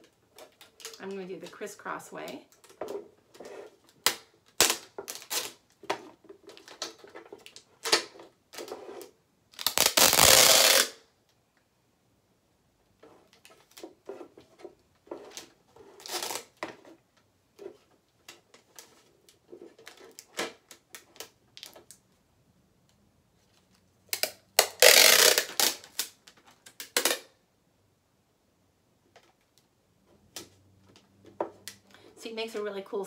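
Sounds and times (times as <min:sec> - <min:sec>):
packing tape crackling: 0:00.0 - 0:01.6, 0:02.5 - 0:08.7, 0:09.5 - 0:11.0, 0:15.3 - 0:16.6, 0:23.4 - 0:27.3
tape unrolling rasp: 0:03.3 - 0:05.7, 0:06.8 - 0:11.0, 0:13.4 - 0:16.7, 0:24.1 - 0:26.2.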